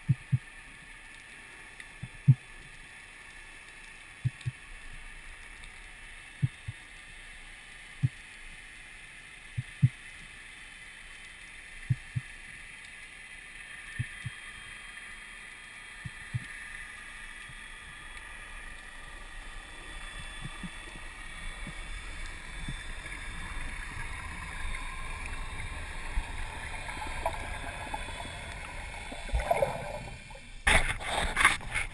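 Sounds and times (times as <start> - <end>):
soft low underwater thumps: 0.0 - 0.5, 2.0 - 2.5, 4.2 - 4.6, 6.4 - 6.8, 11.8 - 12.3
underwater water hiss: 0.2 - 31.9
water splashing: 11.7 - 31.9.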